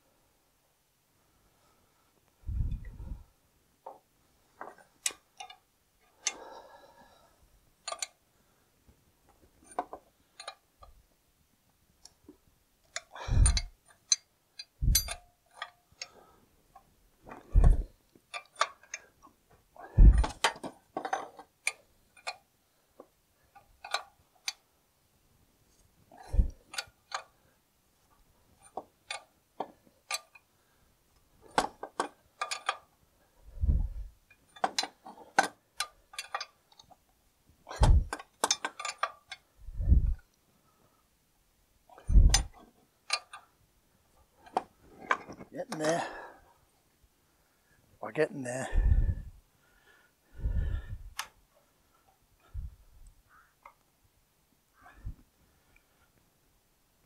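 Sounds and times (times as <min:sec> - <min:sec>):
spanner clicking on a nut: 0:07.8 - 0:08.2, 0:09.6 - 0:11.0, 0:12.9 - 0:16.2, 0:17.6 - 0:19.2, 0:20.1 - 0:22.5, 0:23.6 - 0:24.6, 0:26.4 - 0:27.4, 0:28.6 - 0:30.5, 0:31.4 - 0:32.9, 0:34.3 - 0:37.0, 0:37.7 - 0:39.5, 0:42.0 - 0:43.5.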